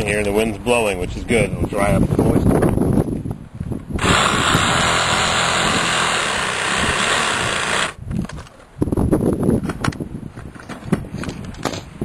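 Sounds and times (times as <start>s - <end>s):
power tool running: 4.0s - 8.0s.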